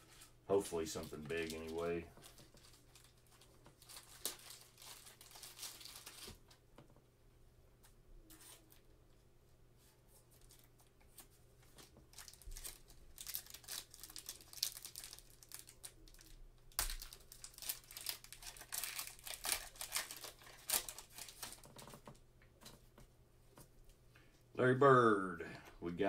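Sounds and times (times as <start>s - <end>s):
foil wrapper crinkling: 0.1s - 6.4s, 11.8s - 22.1s.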